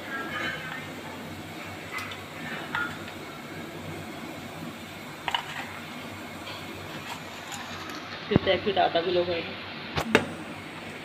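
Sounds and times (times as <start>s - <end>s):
kitchen background hum: 0.0s - 11.0s.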